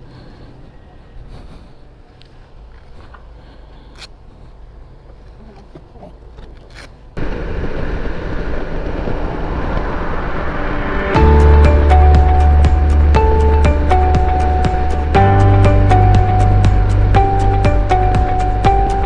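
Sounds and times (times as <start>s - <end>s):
wind rush at highway speed: 7.1s - 19.0s
music with deep bass: 10.1s - 19.0s.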